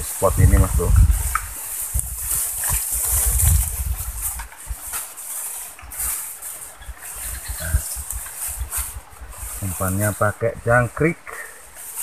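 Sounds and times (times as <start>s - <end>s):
wind buffeting microphone: 0.0s - 5.0s, 5.7s - 11.0s.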